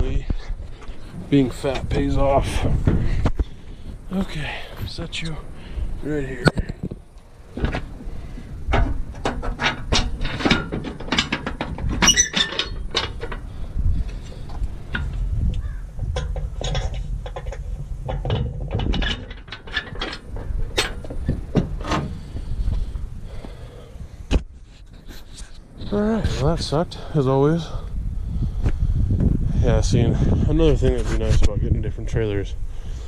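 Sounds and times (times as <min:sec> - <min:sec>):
metal clanks and rattles: 0:06.4 - 0:23.5.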